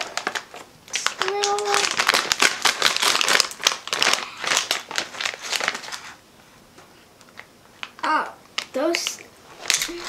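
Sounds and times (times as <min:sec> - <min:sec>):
plastic bag crinkling: 0:00.0 - 0:06.2, 0:09.6 - 0:10.0.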